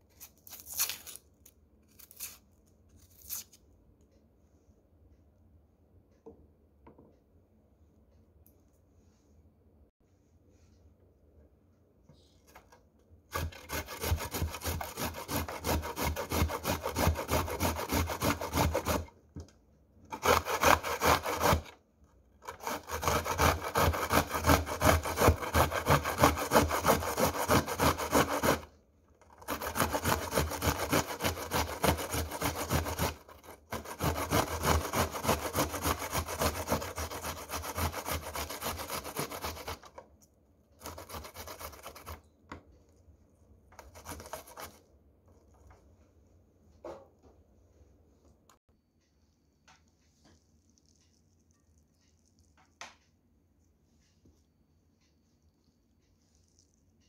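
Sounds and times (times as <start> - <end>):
onion scraping on a metal grater: 13.3 - 19.1, 20.1 - 21.7, 22.4 - 28.7, 29.3 - 40.0, 40.8 - 42.2, 43.8 - 44.8.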